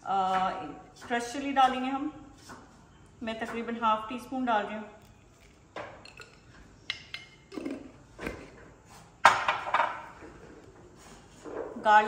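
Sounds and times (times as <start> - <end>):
spoon clinking on glass jar: 5.0 - 7.6.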